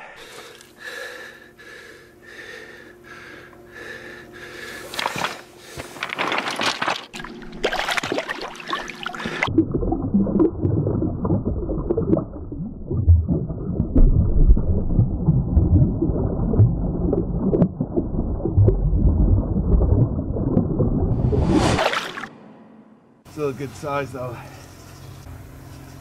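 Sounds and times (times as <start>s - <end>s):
water splashing and sloshing: 4.9s - 22.4s
muffled low rumble: 9.5s - 23.2s.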